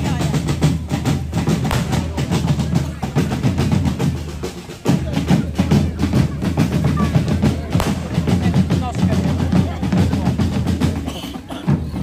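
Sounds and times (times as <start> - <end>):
crowd voices: 0.0 - 12.0
drum band playing fast rhythm: 0.0 - 12.0
fireworks fizzing and crackling: 1.5 - 2.7, 7.7 - 9.0.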